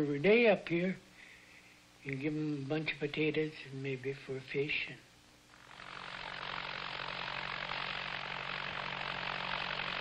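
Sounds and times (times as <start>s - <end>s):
tractor engine running: 5.6s - 10.0s.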